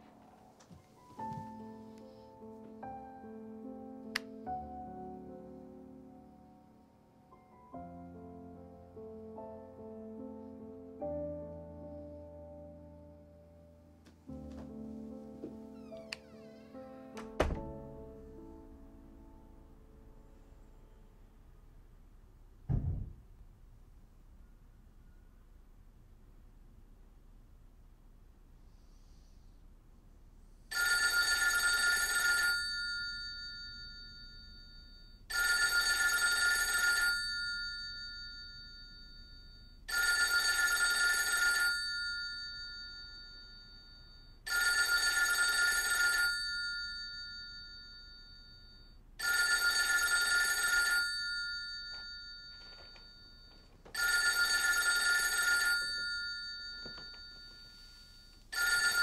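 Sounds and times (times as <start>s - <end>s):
telephone bell ringing: 30.7s - 59.0s.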